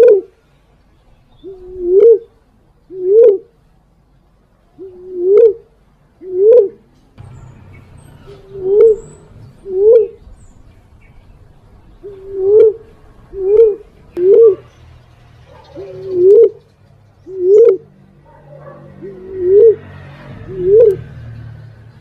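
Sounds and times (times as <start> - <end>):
dove cooing: 0.0 - 0.3, 1.4 - 3.5, 4.8 - 6.9, 8.2 - 10.3, 12.0 - 14.8, 15.5 - 16.6, 17.2 - 21.0.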